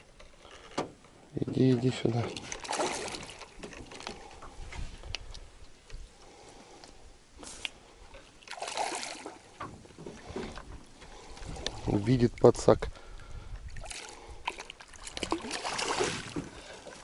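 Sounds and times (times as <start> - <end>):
water sloshing and splashing: 0.0 - 5.5, 7.4 - 12.7, 13.3 - 17.0.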